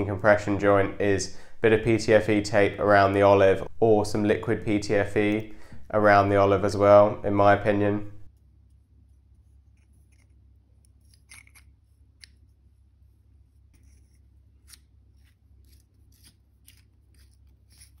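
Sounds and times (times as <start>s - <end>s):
small metal clicks and scrapes: 9.7s - 12.5s, 13.7s - 18.0s.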